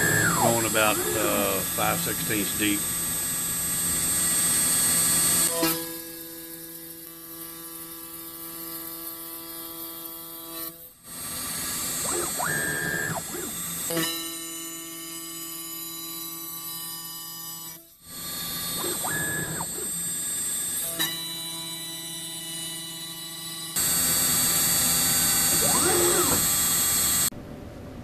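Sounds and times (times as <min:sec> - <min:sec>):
machine tone: 0:00.0 - 0:05.6, 0:12.0 - 0:14.0, 0:18.4 - 0:20.2, 0:23.8 - 0:27.3
router spindle whining: 0:00.0 - 0:05.6, 0:11.2 - 0:14.1, 0:18.4 - 0:23.1, 0:23.8 - 0:27.3
router bit cutting plastic: 0:00.0 - 0:07.5, 0:11.4 - 0:14.4, 0:18.4 - 0:27.3.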